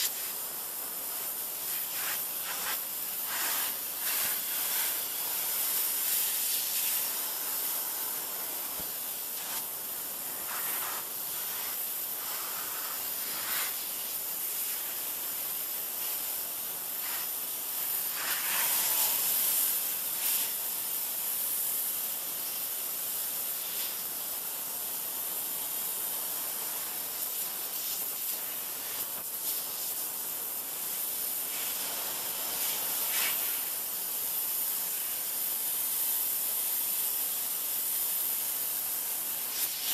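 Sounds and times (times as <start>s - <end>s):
pressure washer jet spraying: 0.0s - 21.0s, 25.4s - 35.3s, 39.2s - 39.9s.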